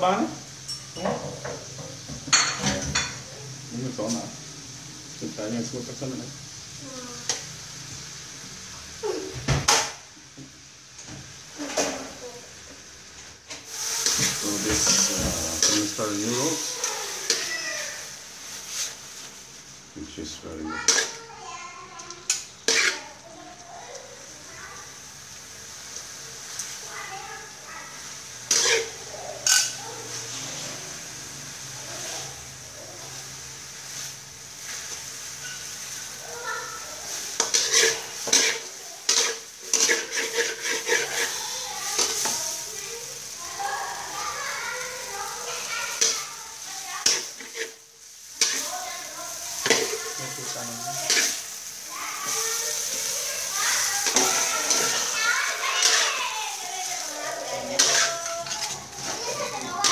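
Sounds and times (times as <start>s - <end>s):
stir-fry sizzling in a wok: 0.0s - 59.9s
metal scraping on pan: 13.6s - 19.4s, 20.8s - 21.3s, 22.2s - 23.3s, 28.0s - 31.0s, 31.9s - 43.3s, 44.0s - 59.9s.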